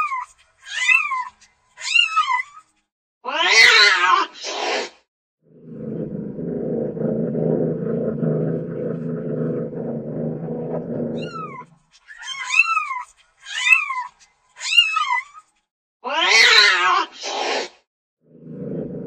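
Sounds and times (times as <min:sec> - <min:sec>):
cat purring: 0:06.0 - 0:11.7.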